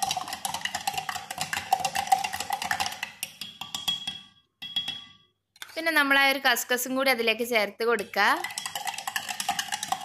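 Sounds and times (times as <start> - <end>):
metal spoon clinking in glass jug: 0.0 - 5.8, 8.2 - 10.0.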